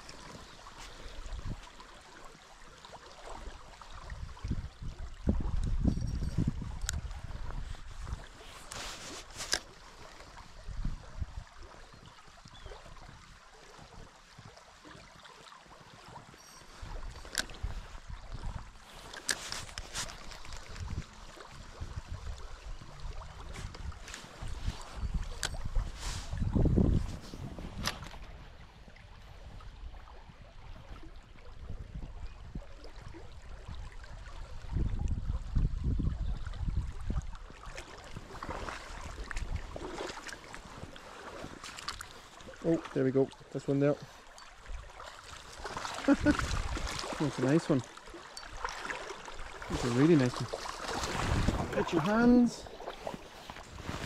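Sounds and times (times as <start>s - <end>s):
wind gusting on microphone: 4.1s - 8.4s, 20.5s - 37.5s, 46.1s - 47.7s, 49.7s - 54.0s
river rushing: 45.2s - 52.8s.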